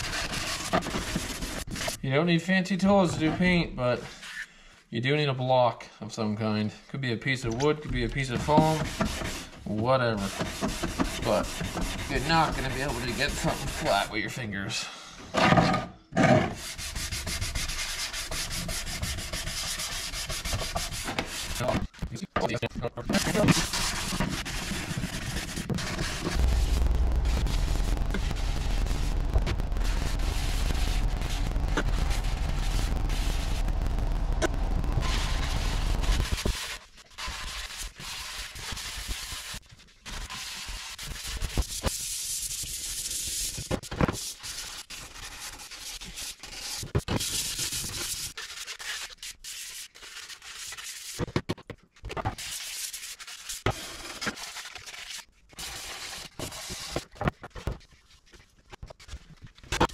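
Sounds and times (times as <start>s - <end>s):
sandpaper rubbing paint by hand: 0.0s - 2.0s, 8.0s - 14.2s, 16.6s - 21.9s, 23.1s - 33.8s, 35.0s - 51.2s, 52.3s - 57.1s.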